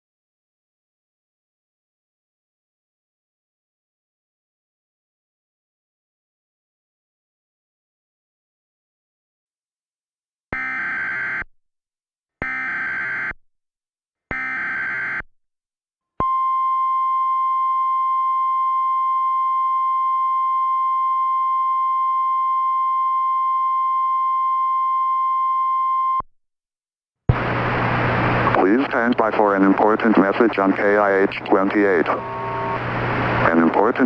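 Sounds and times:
data tone bursts: 31.6 - 32.8.

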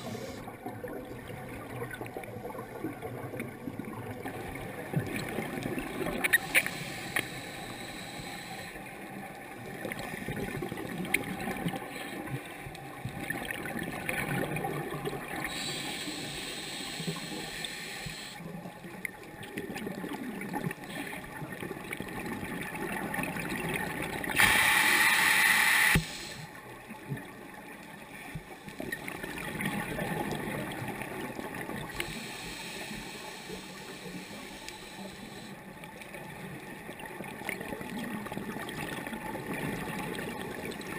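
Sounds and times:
scuba regulator breaths: 0.0 - 0.4, 6.3 - 8.9, 15.4 - 18.4, 24.4 - 26.6, 31.9 - 35.6.

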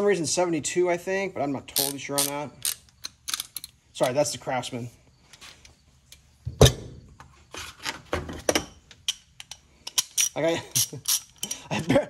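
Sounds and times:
metal tools clinking: 1.7 - 4.4, 8.5 - 12.0.

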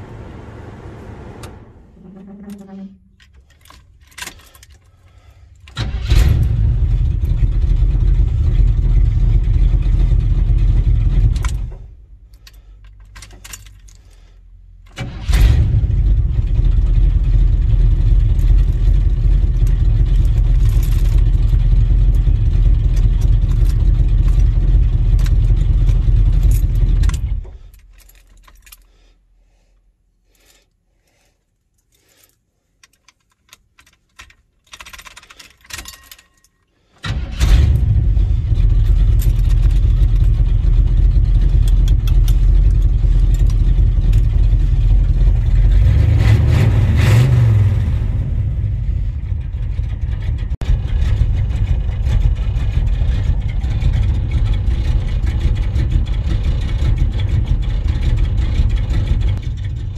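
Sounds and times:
truck engine starting and running: 0.0 - 28.6, 37.0 - 59.9
keys jingling in ignition: 3.2 - 6.0, 12.3 - 14.2, 19.5 - 22.3, 22.9 - 28.9, 31.7 - 36.7, 38.8 - 40.4, 41.4 - 44.6.

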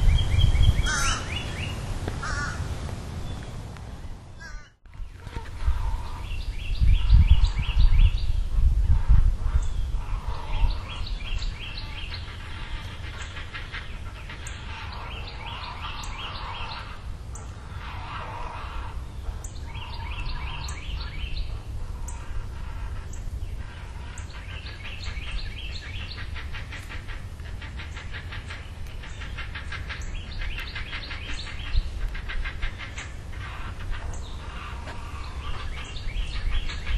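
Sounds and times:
birds chirping: 0.0 - 36.9.

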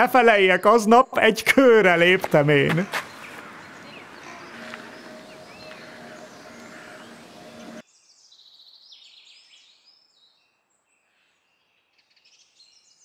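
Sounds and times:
outdoor background noise: 0.0 - 8.0
small birds chirping: 0.1 - 13.0.

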